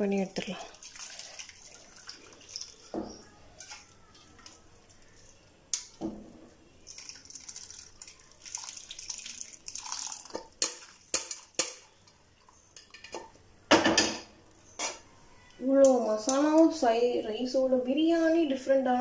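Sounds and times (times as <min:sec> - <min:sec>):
stock pouring through strainer: 0:06.9 - 0:10.5.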